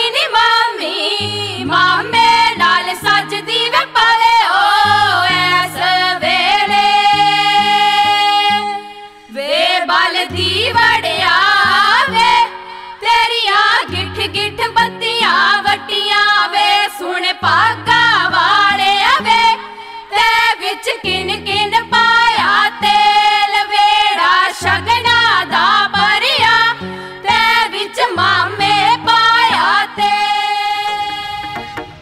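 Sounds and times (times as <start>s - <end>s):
person singing over bass line: 29.5s - 32.0s.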